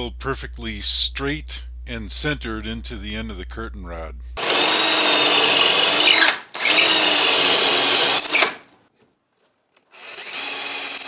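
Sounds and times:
cordless drill boring into wood: 4.4 - 8.6, 9.9 - 11.0.

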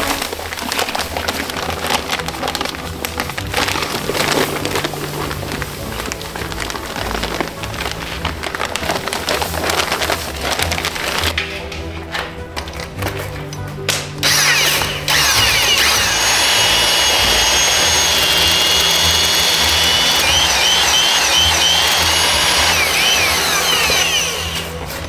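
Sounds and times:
power tool high whine: 14.2 - 24.7.

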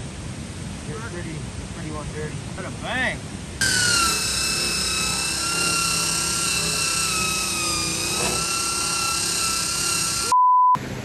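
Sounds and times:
angle grinder grinding metal: 3.6 - 10.3.

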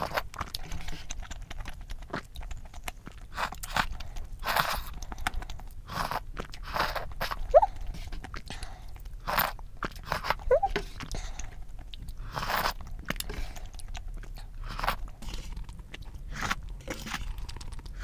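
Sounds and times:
noodle slurping: 3.3 - 8.6, 9.2 - 18.0.

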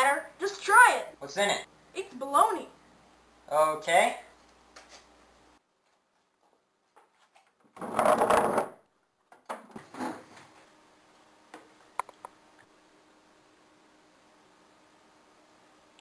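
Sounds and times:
chair scraping on wooden floor: 7.8 - 8.8, 9.7 - 10.6.

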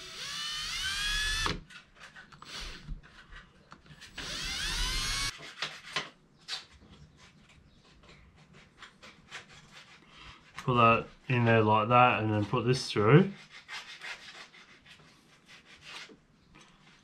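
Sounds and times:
cordless drill whining: 0.0 - 1.6, 4.1 - 5.3.

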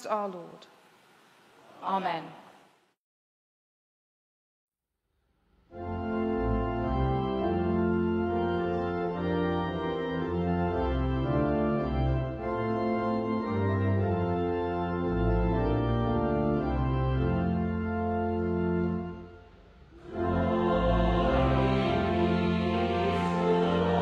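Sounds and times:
church organ playing chords: 5.7 - 24.0.

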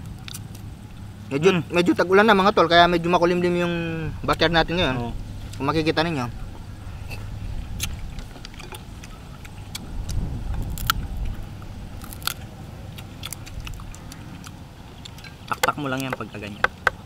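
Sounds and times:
eating sounds: 3.0 - 17.0
prawn shells cracking: 7.7 - 17.0.

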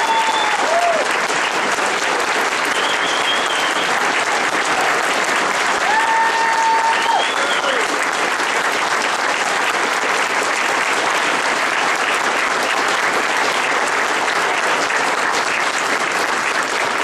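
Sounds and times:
crowd applauding: 0.0 - 17.0.

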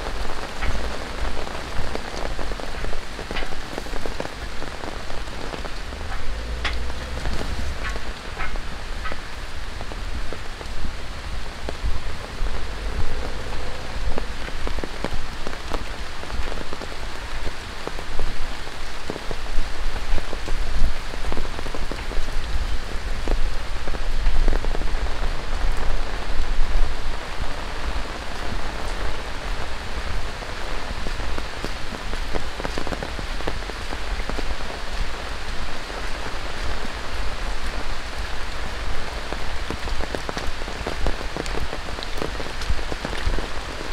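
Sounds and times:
raindrops striking close by: 0.0 - 43.9
steady rain falling: 0.0 - 43.9
low rumble: 0.4 - 17.8, 20.3 - 31.7.

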